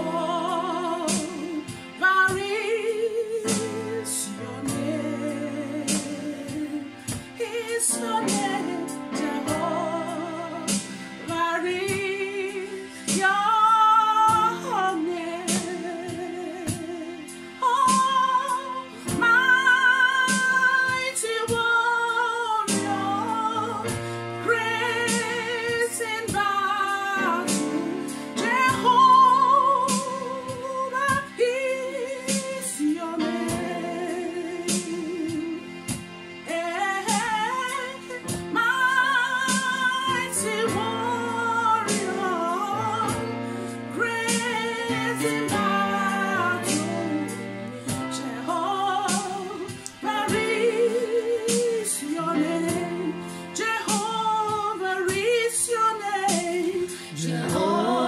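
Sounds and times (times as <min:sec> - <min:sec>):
woman singing with vibrato: 0:00.0 - 0:35.7, 0:36.5 - 0:58.0
backing music with low chords: 0:00.0 - 0:58.0
steady drum beat: 0:05.9 - 0:09.8, 0:56.3 - 0:58.0.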